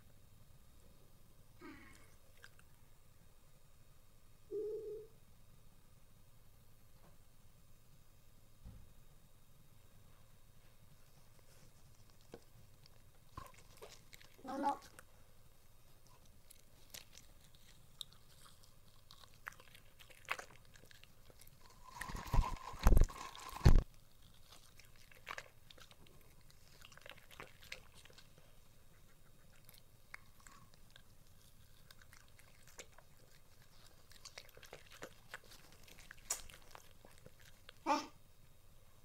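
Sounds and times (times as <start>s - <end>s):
dog chewing: 11.1s - 37.8s.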